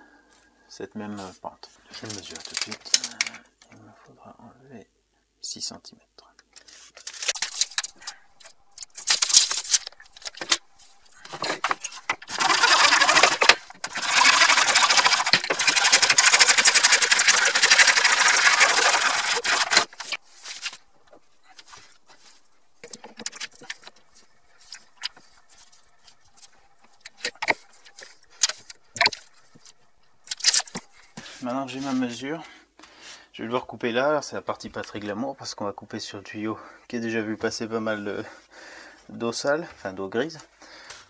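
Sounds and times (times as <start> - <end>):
handsaw cutting plastic pipe: 7.0 - 31.4
pipe scraping and knocking: 7.0 - 31.4.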